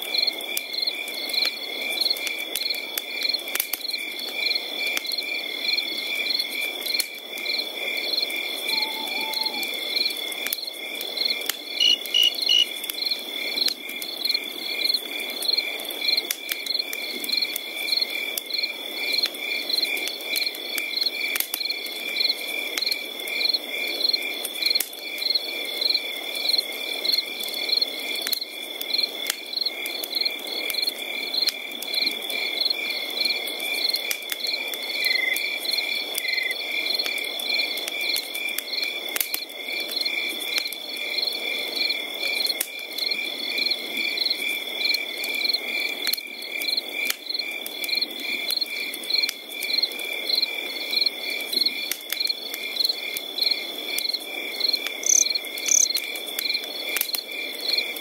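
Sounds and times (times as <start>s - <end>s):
insects chirping: 4.5s - 19.9s, 23.1s - 38.9s, 40.0s - 56.6s
steady high insect trill: 8.1s - 10.1s, 11.2s - 12.8s, 54.6s - 56.0s.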